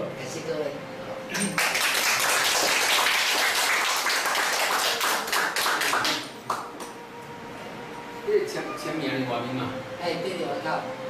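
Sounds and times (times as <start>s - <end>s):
audience applauding: 1.3s - 7.0s.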